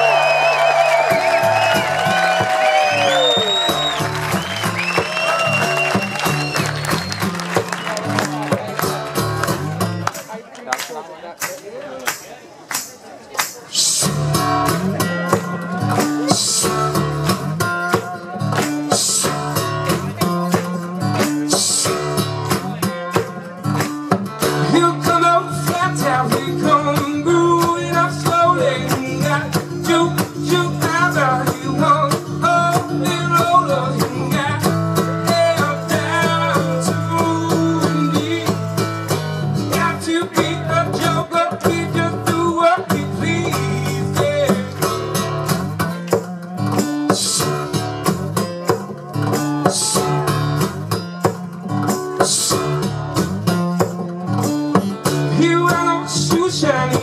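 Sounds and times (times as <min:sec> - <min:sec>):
acoustic guitar strumming: 0:00.0 - 0:10.3, 0:13.4 - 0:57.0
man singing through pa: 0:13.7 - 0:23.6, 0:24.5 - 0:39.0, 0:39.6 - 0:45.0, 0:46.0 - 0:54.4, 0:55.1 - 0:57.0.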